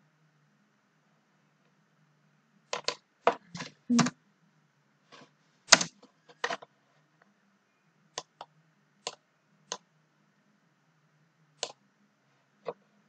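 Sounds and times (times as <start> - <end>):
faint low hum: 0.0 - 13.0
computer mouse clicks: 8.2 - 9.9, 11.6 - 11.8.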